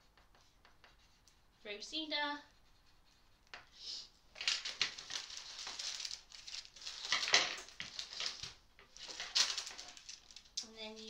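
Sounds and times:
baking paper rustling and crinkling: 4.3s - 11.0s.

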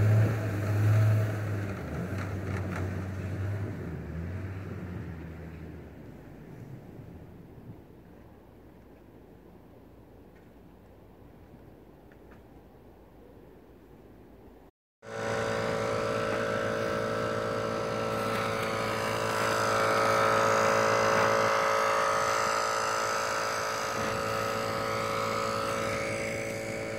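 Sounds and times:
air compressor running: 15.0s - 26.9s.

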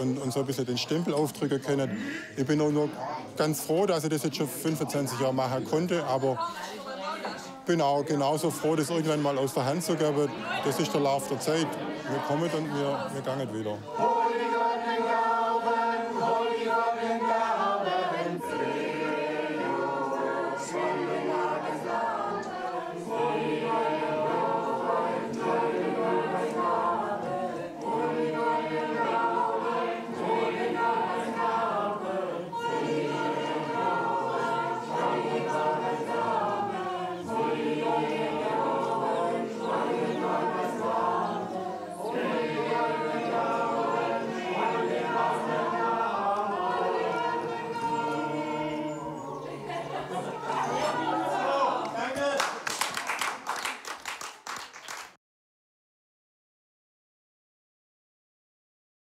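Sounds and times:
choir singing held notes: 0.0s - 52.2s.

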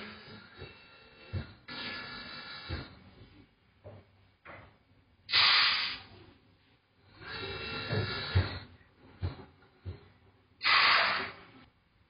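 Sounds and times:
pneumatic air hiss: 5.3s - 6.1s, 10.6s - 11.6s.

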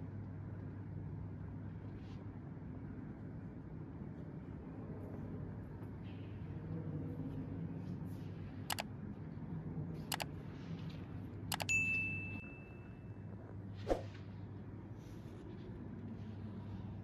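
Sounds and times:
mouse clicks: 8.7s - 8.9s, 11.5s - 11.7s
bright bell ding: 11.6s - 13.1s.

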